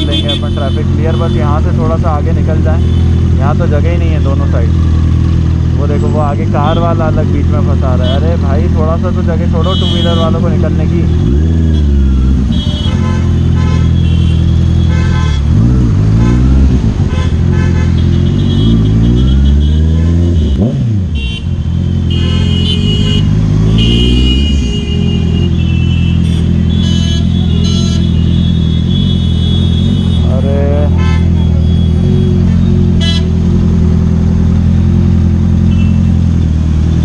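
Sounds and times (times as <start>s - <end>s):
vehicle horns honking: 0.0s - 1.8s, 2.7s - 3.3s, 6.6s - 7.1s, 7.9s - 8.4s, 9.5s - 33.5s, 35.6s - 36.2s
motorcycle engine revving: 0.0s - 37.0s.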